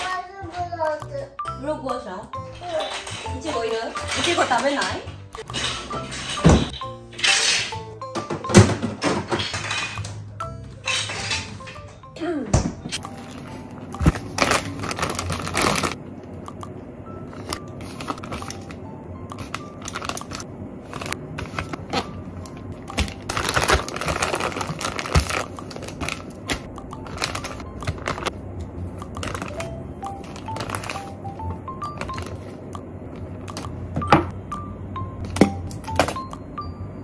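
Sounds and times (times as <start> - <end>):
light background music: 0.0 - 37.0
plastic bags crinkling: 13.2 - 16.0, 19.4 - 22.2, 22.9 - 28.3, 29.2 - 32.5.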